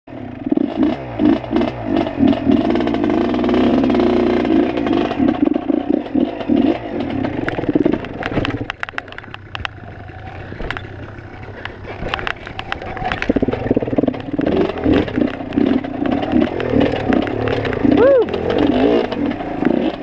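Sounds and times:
dirt bike engine revving: 0:00.1 - 0:20.0
clattering knocks and ticks: 0:04.5 - 0:20.0.

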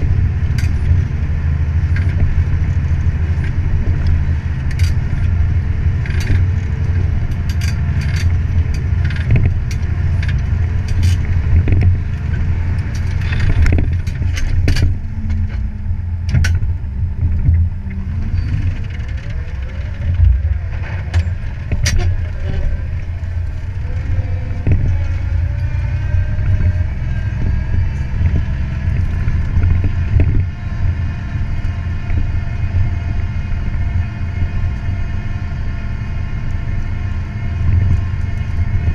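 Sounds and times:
tractor diesel engine under load: 0:00.0 - 0:38.9.

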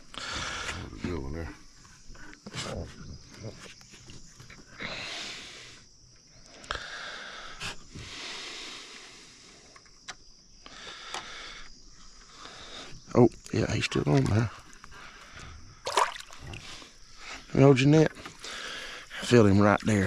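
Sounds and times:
person breathing hard: 0:00.0 - 0:00.9, 0:06.6 - 0:09.8, 0:10.6 - 0:13.0, 0:18.2 - 0:19.2.

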